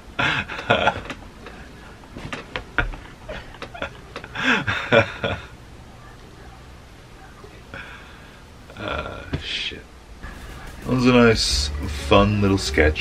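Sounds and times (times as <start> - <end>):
man laughing: 0.2 - 5.6.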